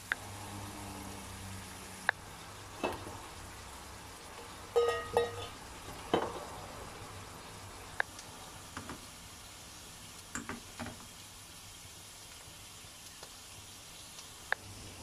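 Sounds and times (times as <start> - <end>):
food sizzling in a pan: 0.0 - 15.0
metal spatula scraping a pan: 4.8 - 5.6.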